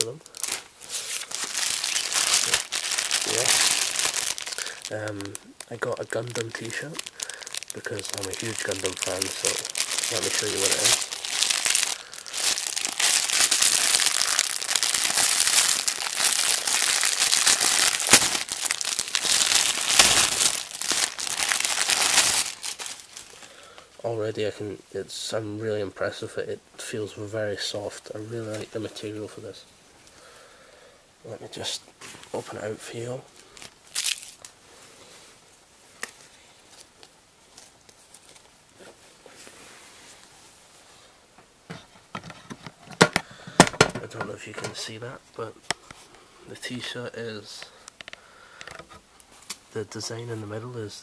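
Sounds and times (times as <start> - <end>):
cloth rustling: 0.0 - 23.3
plastic tearing: 0.0 - 23.4, 33.6 - 34.5
plastic bag crinkling: 0.0 - 23.5, 33.4 - 34.6.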